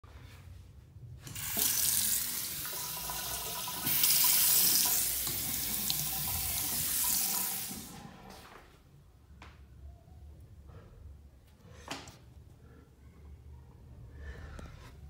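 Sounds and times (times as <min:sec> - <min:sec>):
water stream splashing into sink: 0:01.3 - 0:08.0.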